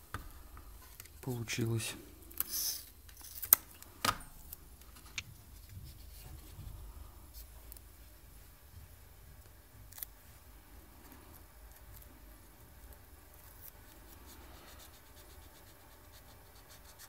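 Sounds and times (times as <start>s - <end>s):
low steady hum: 0.0s - 17.0s
tape handling sounds: 2.3s - 6.3s.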